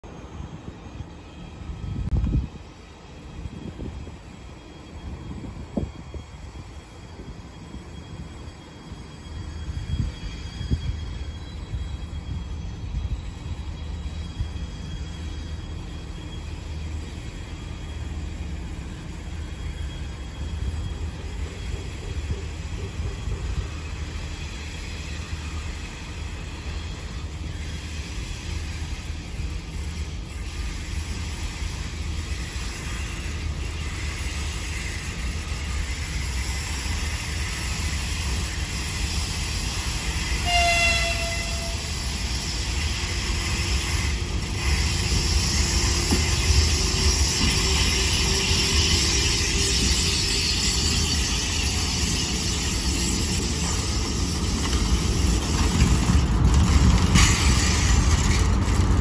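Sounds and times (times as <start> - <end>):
freight train rumble: 0.0 - 59.0
locomotive horn toot: 40.2 - 42.0.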